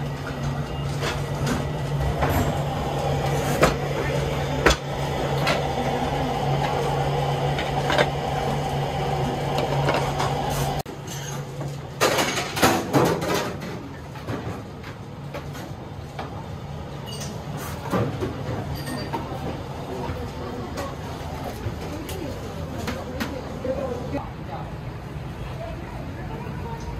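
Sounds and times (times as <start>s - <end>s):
kitchen machinery hum: 0.0s - 26.9s
kitchen room sound: 0.0s - 26.9s
boxes and trays clattering: 11.1s - 15.6s.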